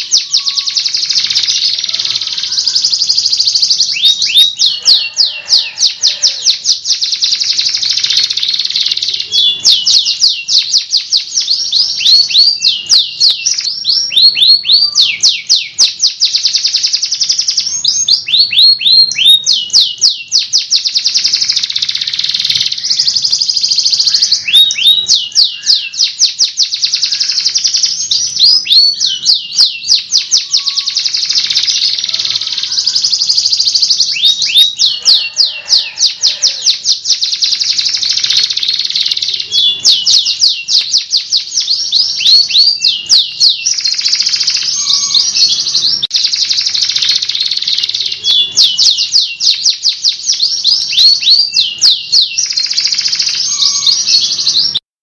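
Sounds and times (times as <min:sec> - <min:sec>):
canary singing trills: 0:00.0 - 0:54.9.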